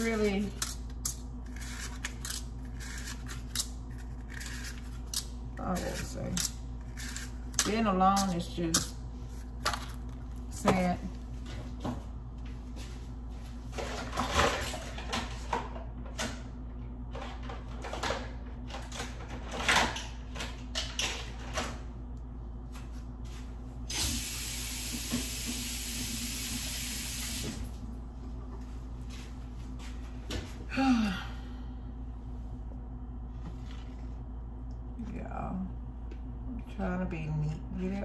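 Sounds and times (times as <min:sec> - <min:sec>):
kitchen things clicking and knocking: 0:00.0 - 0:09.0
kitchen tap running: 0:23.9 - 0:27.7.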